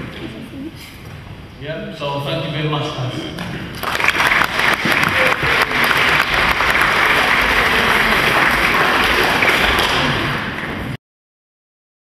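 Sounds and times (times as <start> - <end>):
crowd applauding: 3.7 - 11.0.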